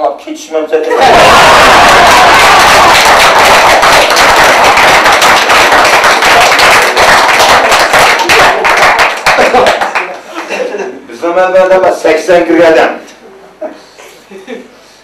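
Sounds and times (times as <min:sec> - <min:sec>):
men laughing loudly: 0:00.9 - 0:02.4, 0:09.4 - 0:11.0
hand claps: 0:01.7 - 0:10.2.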